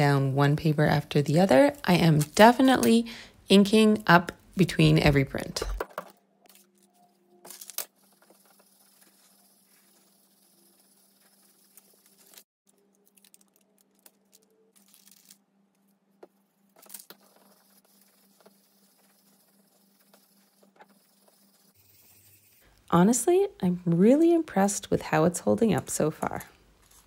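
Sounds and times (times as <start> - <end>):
paper rustling and crinkling: 6.5 - 15.4, 16.6 - 21.4.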